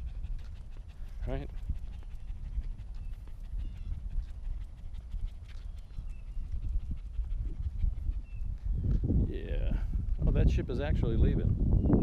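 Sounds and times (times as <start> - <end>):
dog panting: 0.0 - 8.8.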